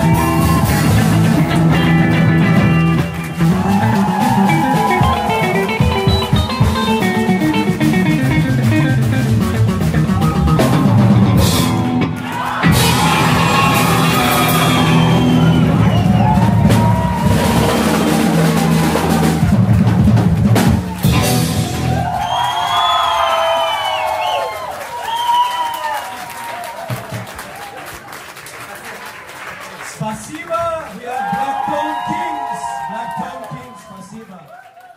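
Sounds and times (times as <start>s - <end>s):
drum rolls and cymbal crashes: 0.0s - 22.1s
live jazz band playing: 0.0s - 22.1s
crowd cheering: 0.0s - 34.9s.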